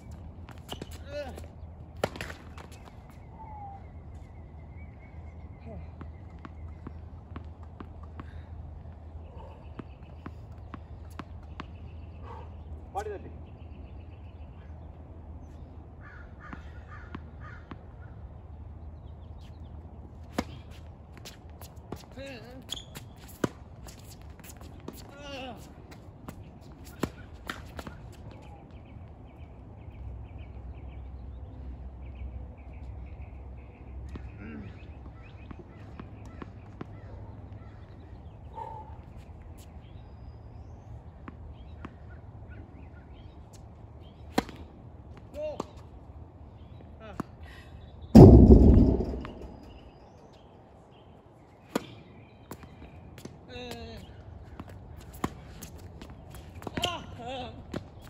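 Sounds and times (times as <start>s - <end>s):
racket hitting ball: 48.2s - 49.8s
tennis ball bouncing on hard court: 48.2s - 49.8s
low background rumble: 48.2s - 50.0s.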